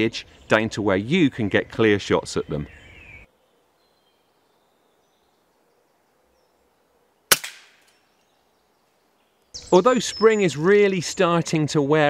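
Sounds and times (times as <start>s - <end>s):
air rifle shot: 7.3s - 7.9s.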